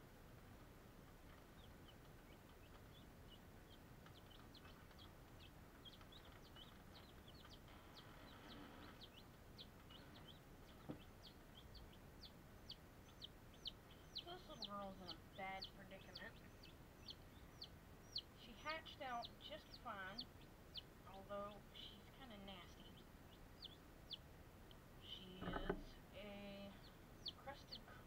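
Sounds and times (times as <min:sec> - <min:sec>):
chicks peeping: 0:00.4 - 0:28.0
knock: 0:25.4 - 0:25.9.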